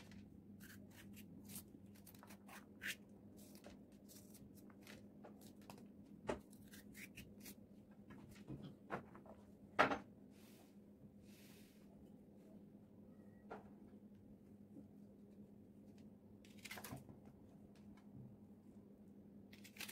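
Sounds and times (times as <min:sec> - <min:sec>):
knife cutting peppers: 0:00.6 - 0:03.0.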